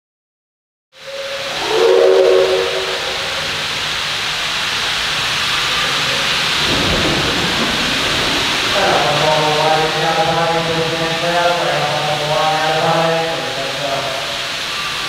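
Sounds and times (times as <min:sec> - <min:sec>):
train whistle blast: 0:01.0 - 0:04.7
steam locomotive hissing: 0:01.0 - 0:15.0
low rumble: 0:01.1 - 0:04.8.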